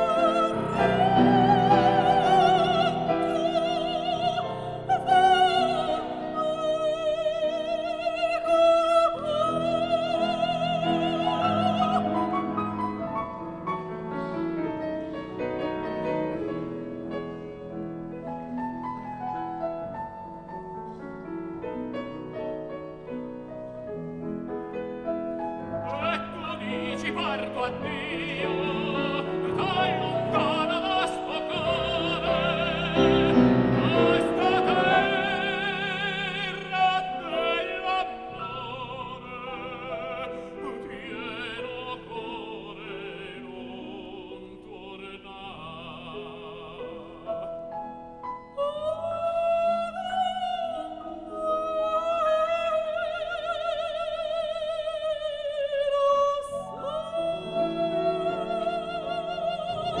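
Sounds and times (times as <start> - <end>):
soprano singing with vibrato: 0.0 - 14.9, 25.0 - 60.0
piano accompaniment: 0.0 - 60.0.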